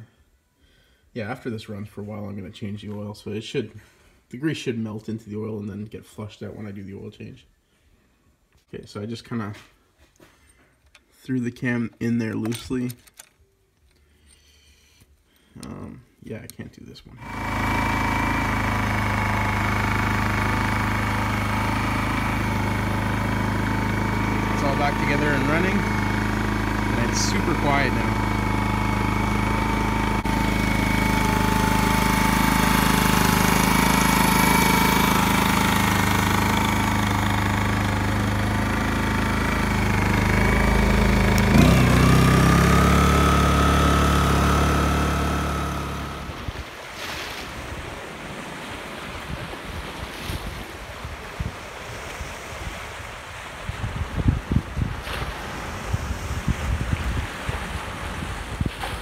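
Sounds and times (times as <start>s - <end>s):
generator engine running: 17.2s - 46.6s
waves breaking: 17.2s - 59.0s
gusting wind: 47.5s - 59.0s.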